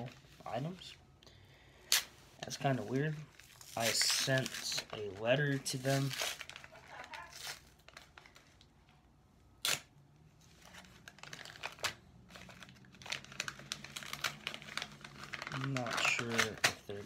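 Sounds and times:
paper rustling and crinkling: 2.8s - 8.9s, 10.4s - 17.0s.

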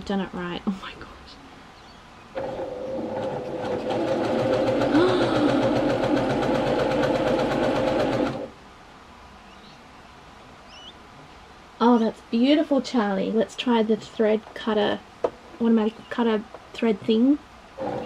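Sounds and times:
sewing machine stitching fabric: 2.4s - 8.5s, 17.8s - 18.0s.

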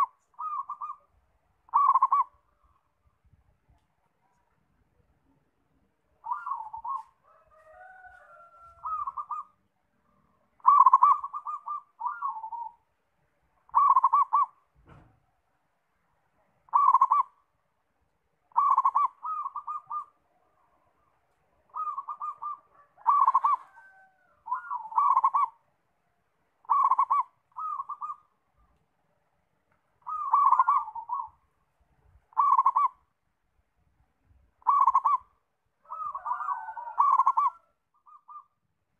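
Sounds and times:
dove cooing: 0.0s - 1.1s, 1.7s - 2.8s, 6.2s - 9.6s, 10.6s - 12.9s, 13.7s - 14.6s, 16.7s - 17.4s, 18.5s - 25.6s, 26.6s - 28.7s, 30.0s - 31.5s, 32.3s - 33.1s, 34.6s - 38.6s
faint gliding bird calls: 0.0s - 38.9s
brief low thump: 14.8s - 15.2s.

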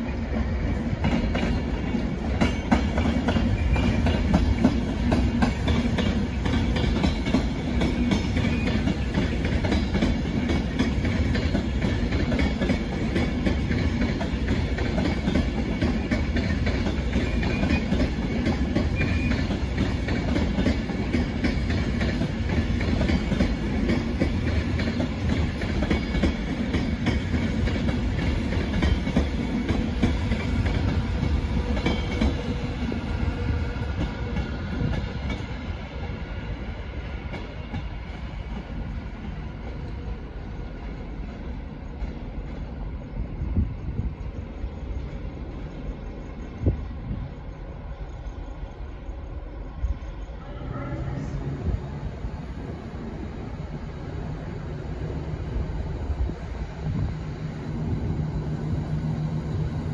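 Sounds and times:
train wheels on rails: 0.0s - 59.9s.

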